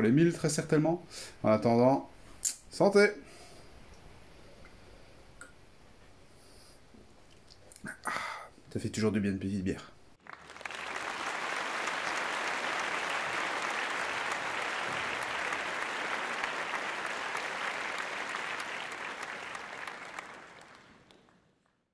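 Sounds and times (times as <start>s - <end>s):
crowd applause: 10.2s - 21.8s.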